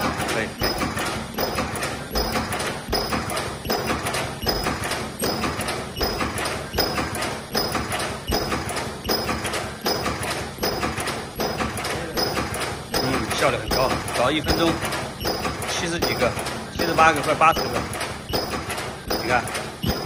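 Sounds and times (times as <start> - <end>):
welding machine clunking: 0.0 - 20.0.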